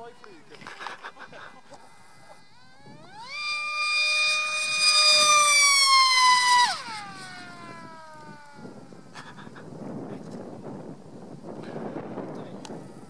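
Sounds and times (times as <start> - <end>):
high-pitched electric motor whine: 1.6 - 9.2.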